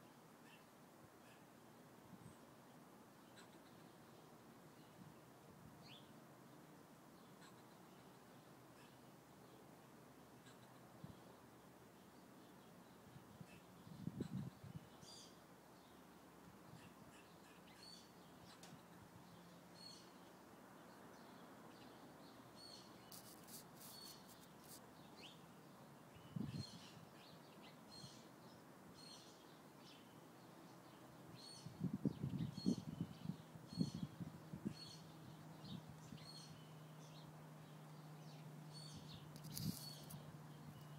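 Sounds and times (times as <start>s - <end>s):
squirrel alarm chirps: 39.4s - 40.2s.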